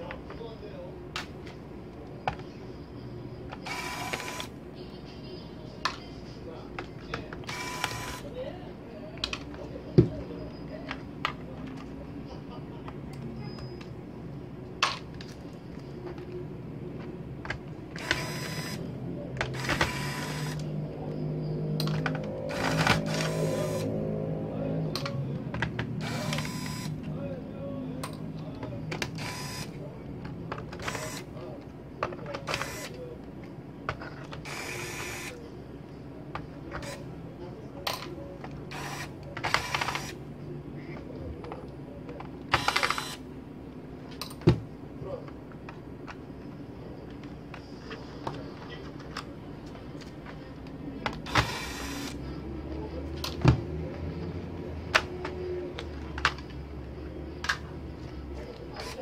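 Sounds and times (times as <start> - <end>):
electric screwdriver whirring: 3.6 - 4.5, 7.4 - 8.3, 18.0 - 20.7, 22.5 - 23.9, 26.0 - 27.0, 29.1 - 29.8, 30.8 - 31.3, 32.5 - 32.9, 34.4 - 35.3, 38.7 - 40.2, 42.6 - 43.2, 51.3 - 52.2.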